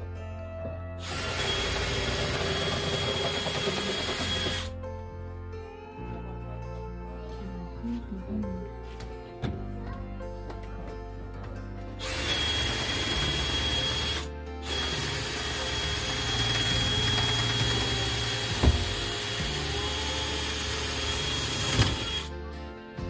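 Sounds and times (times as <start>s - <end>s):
power tool motor whine: 1.0s - 4.7s, 12.0s - 22.3s.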